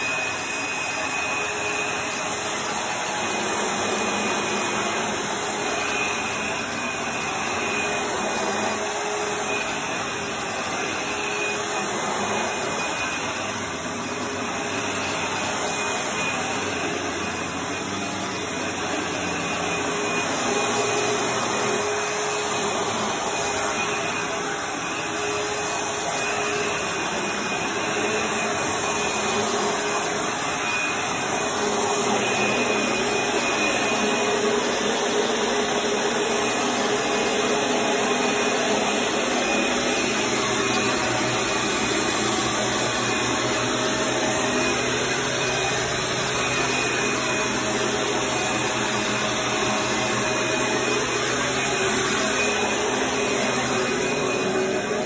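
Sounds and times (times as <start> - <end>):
vacuum cleaner running: 0.0 - 55.0.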